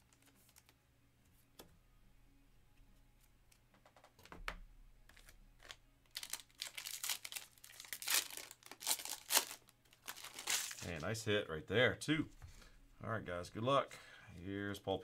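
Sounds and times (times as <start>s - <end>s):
foil wrapper tearing and crinkling: 5.2s - 11.0s.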